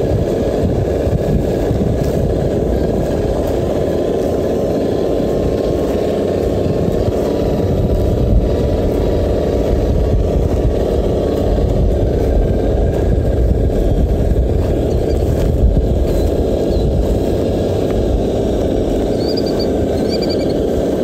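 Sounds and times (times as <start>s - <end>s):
rc car motor humming: 0.0s - 21.0s.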